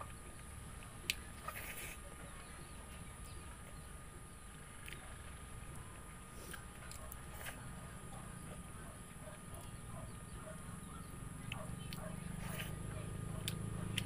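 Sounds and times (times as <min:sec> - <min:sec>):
steady low hum: 0:00.0 - 0:14.0
chewing and mouth sounds: 0:11.4 - 0:14.0.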